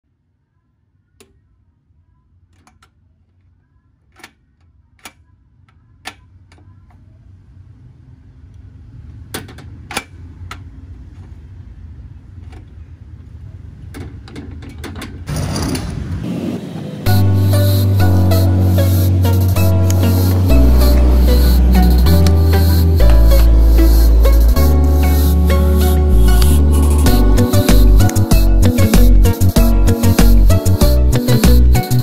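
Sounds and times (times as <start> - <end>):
low rumble: 18.3 - 31.7.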